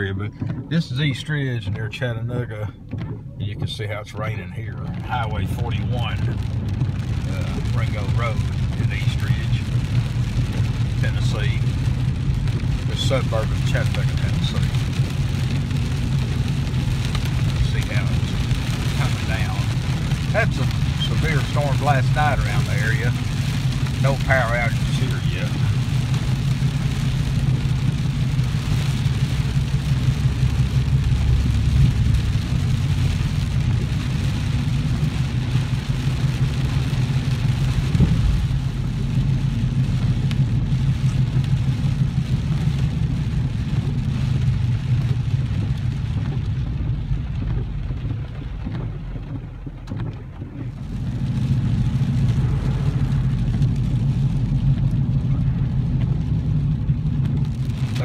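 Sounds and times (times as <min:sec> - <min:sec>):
car engine and road drone: 0:00.0 - 0:58.0.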